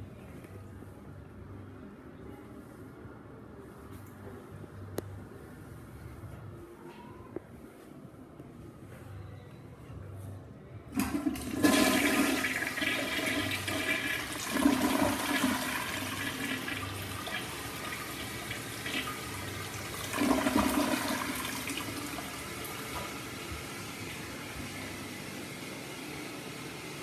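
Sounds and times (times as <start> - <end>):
toilet flushing: 11.0 - 27.0.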